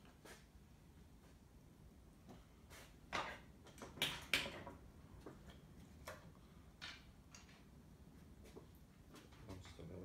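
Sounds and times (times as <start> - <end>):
tools clicking and knocking on workbench: 3.1 - 7.7.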